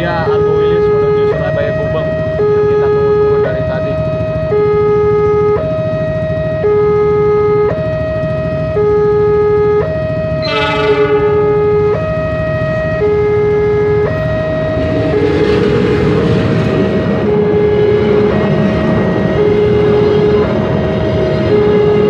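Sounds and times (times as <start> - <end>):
train rumble: 0.0 - 22.0
two-tone crossing alarm: 0.0 - 22.0
locomotive horn blast: 8.8 - 12.4.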